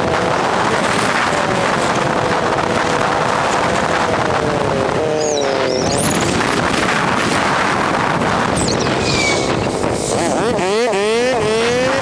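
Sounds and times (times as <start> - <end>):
motorcycle engine: 0.0 - 12.0
wind noise on microphone: 0.0 - 12.0.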